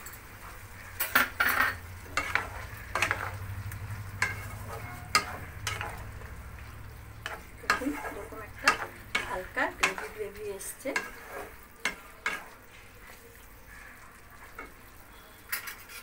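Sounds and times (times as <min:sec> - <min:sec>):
low steady hum: 0:00.0 - 0:11.7
soft sizzle from pan: 0:00.0 - 0:16.0
wooden spatula scraping a wok: 0:00.2 - 0:16.0.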